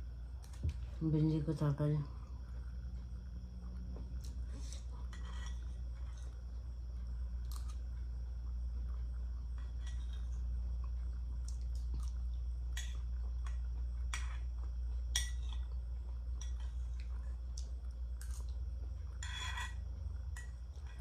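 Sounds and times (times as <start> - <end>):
steady low hum: 0.0 - 21.0
spoon scraping a plate: 4.6 - 6.3, 9.6 - 10.3, 19.1 - 21.0.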